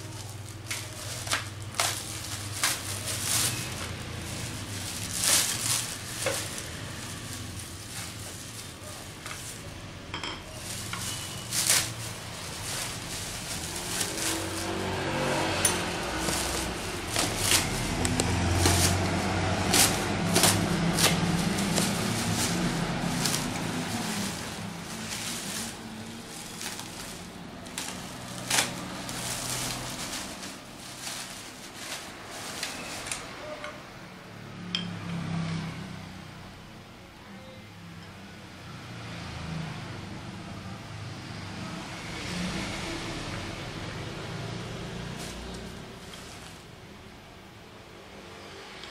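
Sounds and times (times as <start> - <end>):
plastic wrapping crinkling: 0.0 - 33.8, 43.7 - 47.1.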